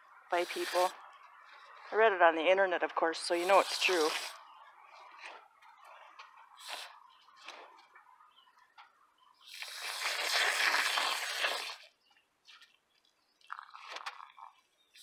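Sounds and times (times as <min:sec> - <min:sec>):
hand trowel scraping soil: 0:00.3 - 0:01.0, 0:03.2 - 0:07.8, 0:09.5 - 0:11.9
hose nozzle spraying water into soil: 0:00.3 - 0:01.0, 0:03.2 - 0:04.4, 0:06.6 - 0:07.0, 0:09.4 - 0:11.9.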